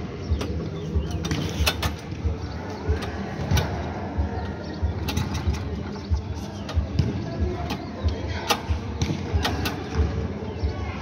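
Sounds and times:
go-kart engine rumble: 0:00.0 - 0:10.6
sharp clicks and knocks: 0:00.4 - 0:02.2, 0:05.0 - 0:05.9.

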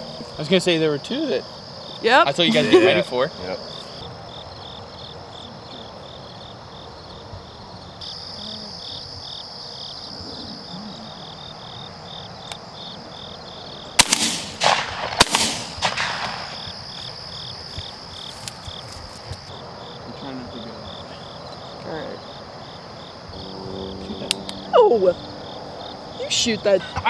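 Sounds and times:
insects chirping: 0:00.0 - 0:27.0
shotgun shots: 0:14.0 - 0:16.8.

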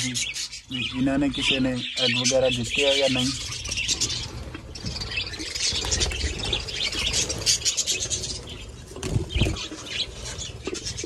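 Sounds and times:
budgerigars chattering: 0:00.0 - 0:11.0
wings flapping: 0:02.9 - 0:11.0.

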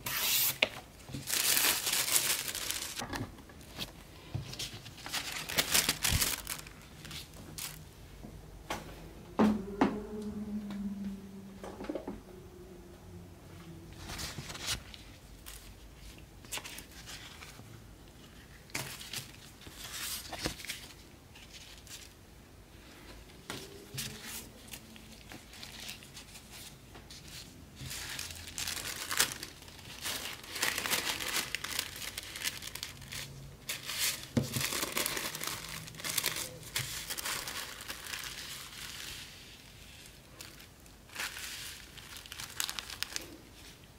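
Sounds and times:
sharp paper crackles: 0:00.0 - 0:03.0, 0:03.6 - 0:07.8, 0:23.8 - 0:43.7
tissue paper rustling: 0:01.2 - 0:03.0, 0:03.6 - 0:07.8, 0:23.6 - 0:43.9.

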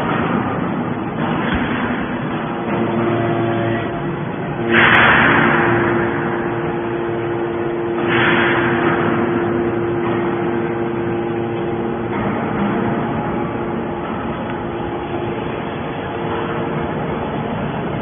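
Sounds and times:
hydraulic power pack hum: 0:00.0 - 0:18.0
loud rushes of noise: 0:00.0 - 0:18.0.

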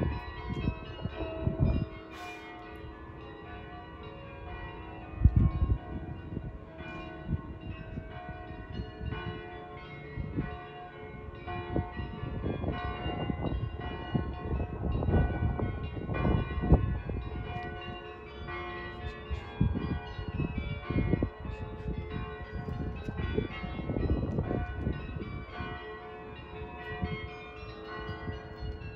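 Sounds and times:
church bells ringing: 0:00.0 - 0:28.9
wind buffeting microphone: 0:00.0 - 0:28.9.

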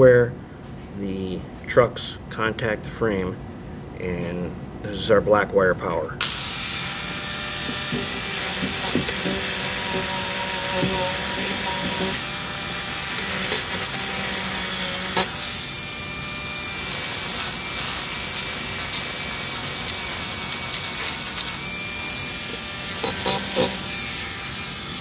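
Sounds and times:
rotary wire brush scrubbing metal: 0:07.6 - 0:25.0.

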